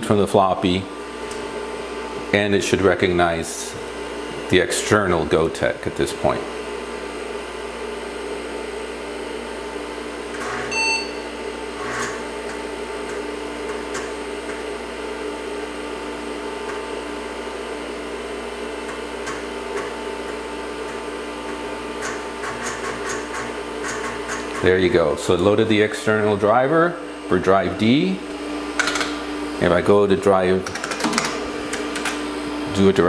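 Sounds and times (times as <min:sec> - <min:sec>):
computer fan hum: 0:00.0 - 0:33.0
short computer beep: 0:10.7 - 0:11.3.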